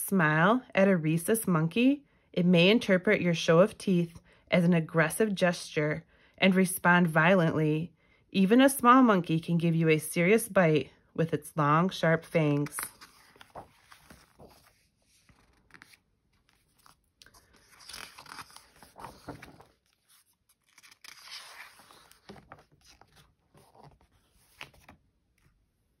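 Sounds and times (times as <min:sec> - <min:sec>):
paper pages rustling: 0:12.4 - 0:25.6.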